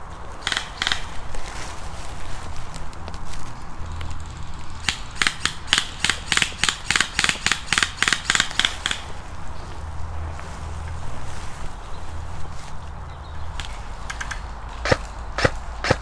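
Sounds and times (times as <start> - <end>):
airsoft gun shots: 4.8 - 9.1, 14.8 - 16.0.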